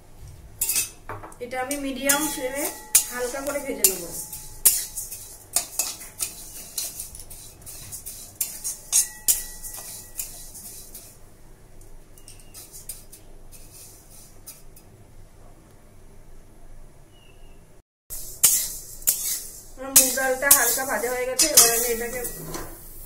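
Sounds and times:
metal spatula scraping pan: 0:00.6 - 0:01.0, 0:01.6 - 0:11.2, 0:12.2 - 0:14.8, 0:18.2 - 0:23.0.

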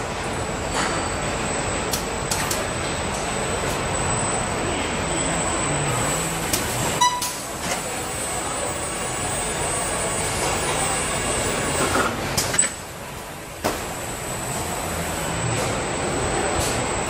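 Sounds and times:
industrial machinery hum: 0:00.0 - 0:17.0
short beep: 0:07.0 - 0:07.4.

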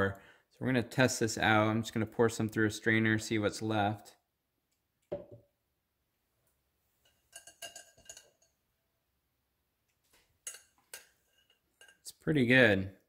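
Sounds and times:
metal strainer clinking on glass bowl: 0:07.0 - 0:08.6, 0:10.4 - 0:12.1.

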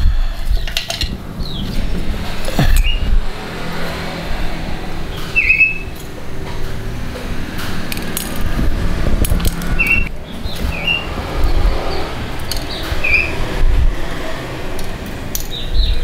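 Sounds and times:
metal parts clicking and clinking: 0:00.4 - 0:02.8, 0:07.6 - 0:10.7, 0:12.4 - 0:13.1, 0:14.7 - 0:15.7.

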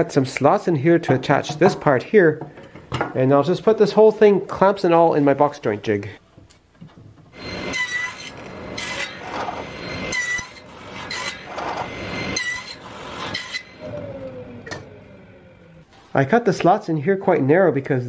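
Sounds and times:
saw blade cutting wood: 0:07.4 - 0:14.0
table saw whine: 0:07.4 - 0:15.8.

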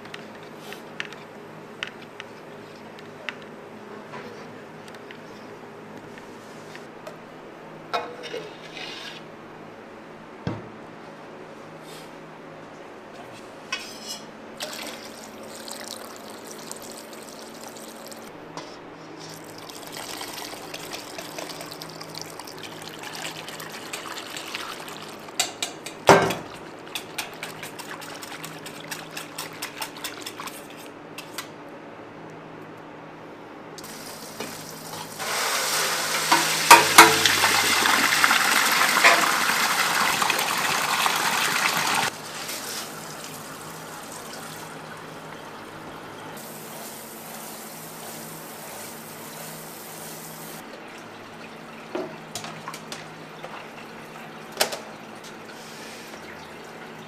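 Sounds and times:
metal bowls and utensils clinking: 0:36.3 - 0:37.5.

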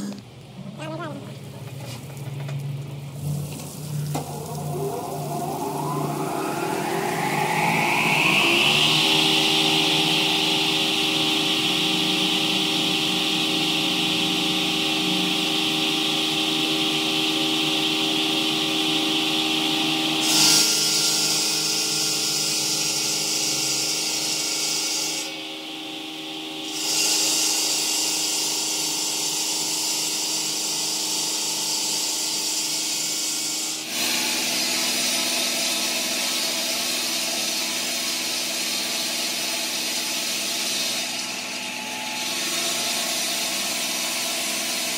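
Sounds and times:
machine hum: 0:00.0 - 0:24.6, 0:25.2 - 0:28.6
saw blade grinding through stone: 0:26.7 - 0:28.2, 0:29.3 - 0:44.9.

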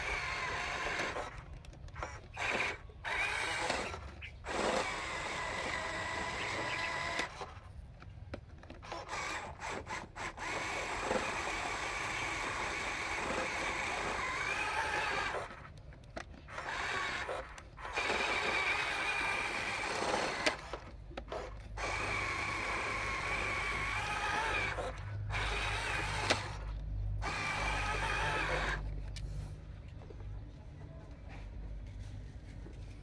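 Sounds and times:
toy truck electric motor whining: 0:00.0 - 0:07.8, 0:08.4 - 0:29.5
sharp clicks: 0:00.1 - 0:05.0, 0:05.6 - 0:10.1.

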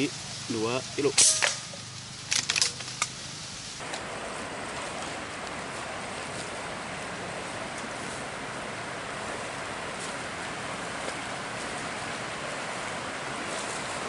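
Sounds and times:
sharp clicks: 0:02.3 - 0:03.2
river rushing over rocks: 0:03.8 - 0:14.0.

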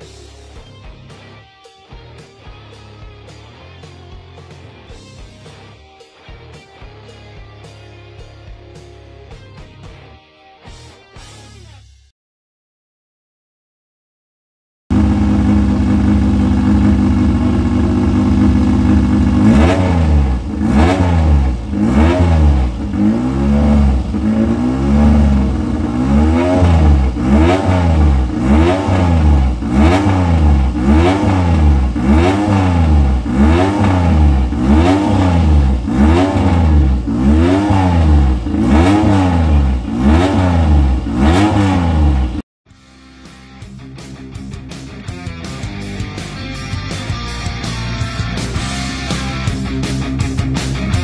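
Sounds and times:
motorcycle engine revving: 0:14.9 - 0:42.4.

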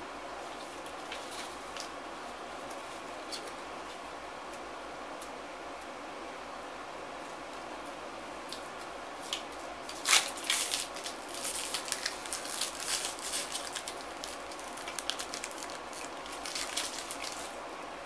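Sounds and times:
plastic wrapper crinkling: 0:09.9 - 0:17.6
wrapper ripping: 0:09.9 - 0:17.6.

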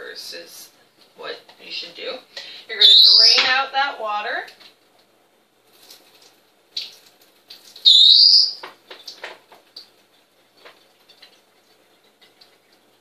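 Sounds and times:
loud high chirp: 0:02.8 - 0:03.4, 0:07.8 - 0:08.6.

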